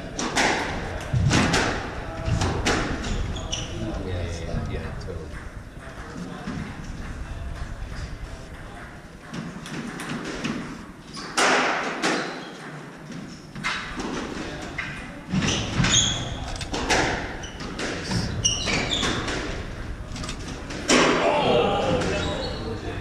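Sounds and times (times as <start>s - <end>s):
rackets hitting squash ball: 0.0s - 3.8s, 5.3s - 22.8s
shoes squeaking on wooden floor: 14.7s - 16.6s, 17.3s - 19.6s.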